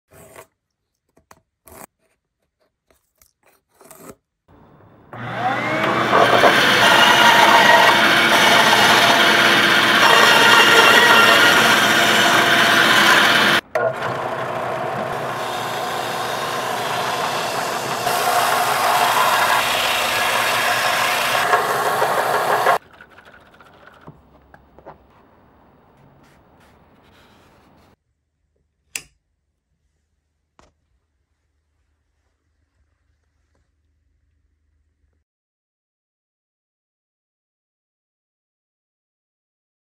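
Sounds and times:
belt sander sanding wood: 5.2 - 24.2
click: 28.9 - 29.2.

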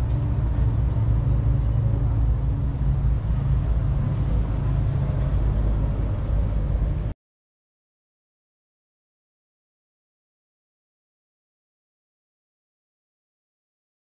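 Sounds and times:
vehicle engine and road drone: 0.0 - 7.2.

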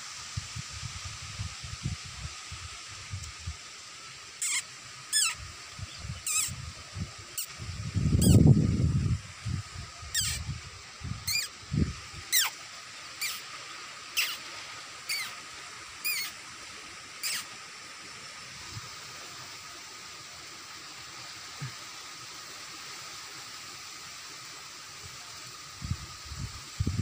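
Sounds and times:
animal squealing cries: 4.4 - 5.4, 6.2 - 6.6, 8.2 - 8.4, 10.1 - 10.4, 11.2 - 11.6, 12.3 - 12.6, 13.2 - 13.5, 14.2 - 15.4, 16.0 - 16.4, 17.2 - 17.5.

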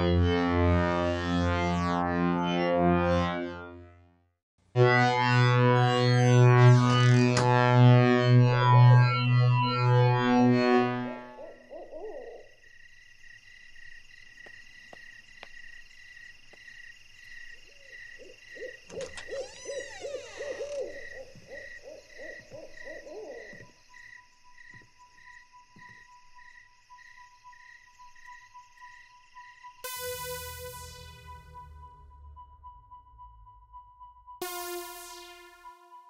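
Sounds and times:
high pulsing insect chirp: 11.3 - 35.6
owl-like hoots: 11.4 - 12.6, 17.7 - 23.7.

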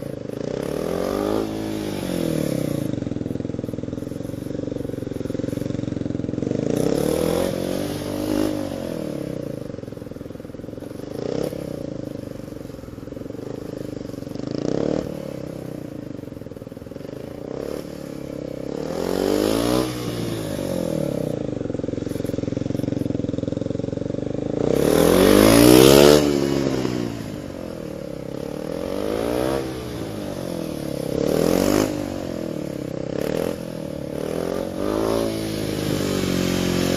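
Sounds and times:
motorcycle engine revving: 0.0 - 36.9.

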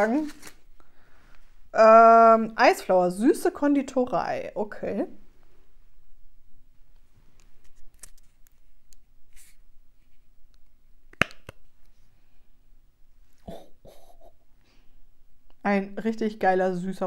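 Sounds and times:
person sniffing: 13.4 - 14.8.

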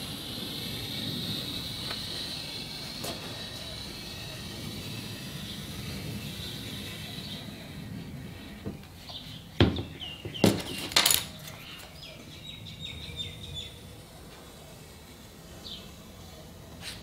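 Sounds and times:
bird chirping: 9.0 - 13.9
knocks on wooden workbench: 9.6 - 10.7.

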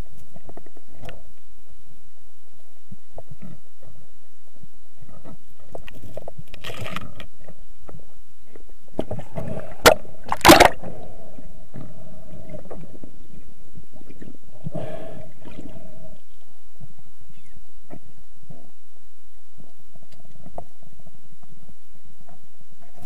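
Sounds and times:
muffled underwater wash: 0.0 - 23.0
clicks and crackles: 5.2 - 8.0.

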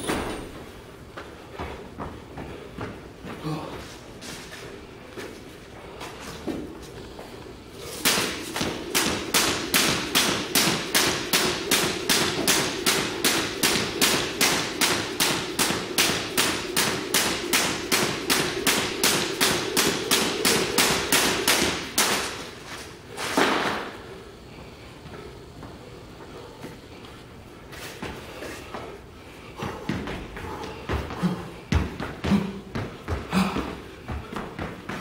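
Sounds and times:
jump rope slapping wooden floor: 7.9 - 22.6, 29.6 - 35.0
feet landing on floor: 8.0 - 18.5, 29.7 - 35.0.

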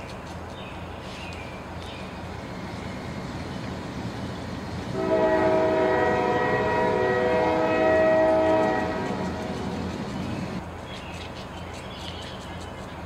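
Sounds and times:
horn chord: 5.0 - 9.8.

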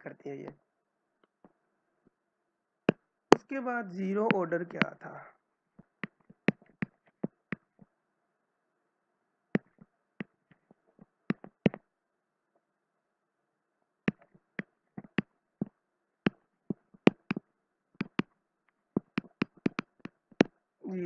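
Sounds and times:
stylus tapping on tablet: 5.8 - 7.9, 9.6 - 11.9, 14.1 - 20.6.

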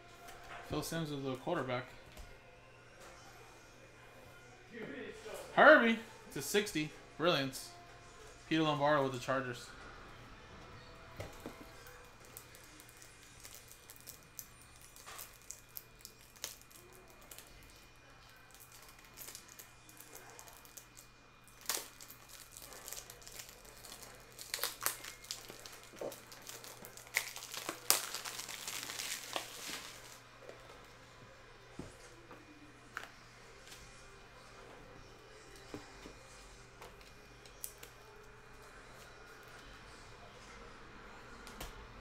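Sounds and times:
foil wrapper crinkling and tearing: 11.8 - 30.2.

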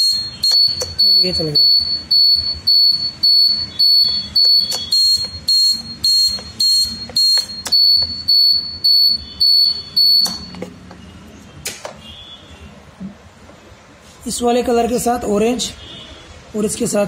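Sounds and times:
high-pitched buzzer beeping: 0.0 - 10.6.

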